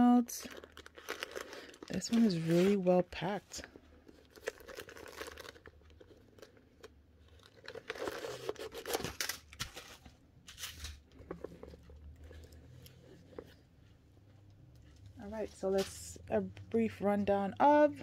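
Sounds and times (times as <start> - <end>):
packing material crinkling and tearing: 0.0 - 13.6.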